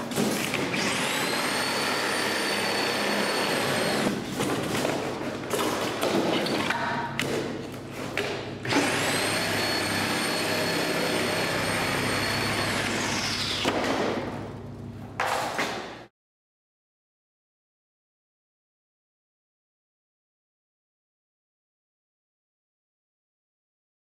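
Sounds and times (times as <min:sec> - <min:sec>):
power saw buzzing: 0:00.6 - 0:04.2, 0:08.6 - 0:13.6.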